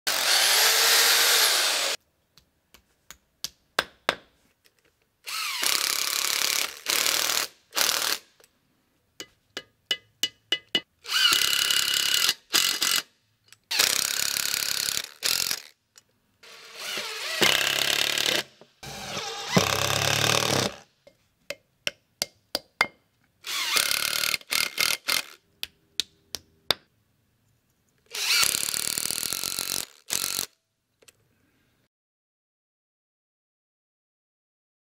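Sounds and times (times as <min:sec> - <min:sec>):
hammer drill boring into concrete: 0:00.1 - 0:02.0, 0:05.3 - 0:08.3, 0:11.1 - 0:13.1, 0:13.7 - 0:15.7, 0:16.4 - 0:20.8, 0:23.4 - 0:25.4, 0:28.1 - 0:30.5.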